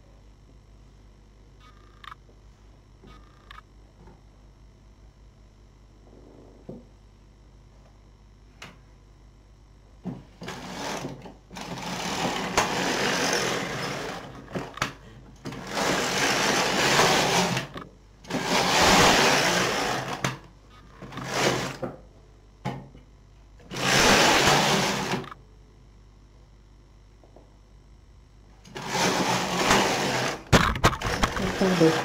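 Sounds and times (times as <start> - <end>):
knitting machine carriage sliding: 10.4 - 14.9, 15.5 - 20.4, 21.0 - 21.8, 23.7 - 25.4, 28.7 - 32.0.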